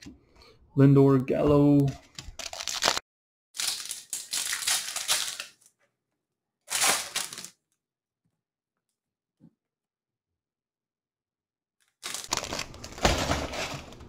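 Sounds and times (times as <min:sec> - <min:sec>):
foil wrapper crinkling: 0:02.2 - 0:03.0, 0:03.6 - 0:05.7, 0:06.7 - 0:07.6, 0:12.0 - 0:14.0.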